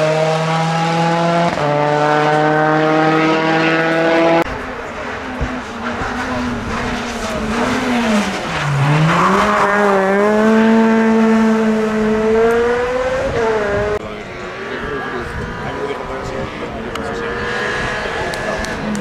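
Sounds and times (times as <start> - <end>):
rally car engine revving: 0.0 - 19.0.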